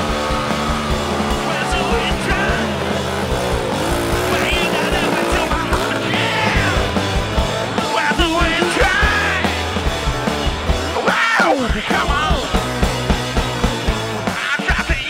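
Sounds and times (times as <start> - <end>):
shouted singing vocal: 0.0 - 9.9, 10.9 - 13.0
driving drum beat: 0.0 - 15.0
rock song: 0.0 - 15.0.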